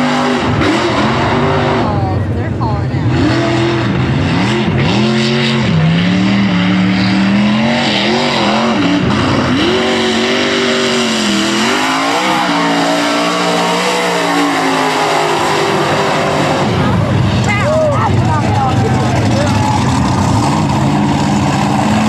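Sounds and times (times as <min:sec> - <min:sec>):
truck engine revving hard: 0:00.0 - 0:22.0.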